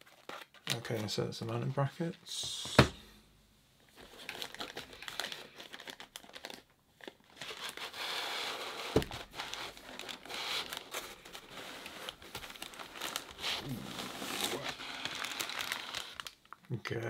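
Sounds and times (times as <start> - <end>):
plastic wrapping crinkling: 3.9 - 17.0.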